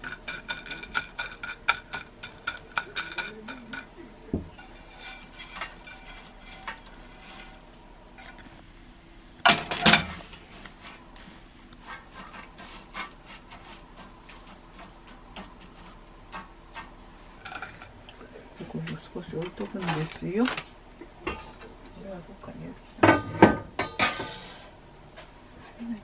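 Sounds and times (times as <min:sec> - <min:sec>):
dried fish stirred in a pan: 0:00.0 - 0:08.4, 0:10.1 - 0:18.0.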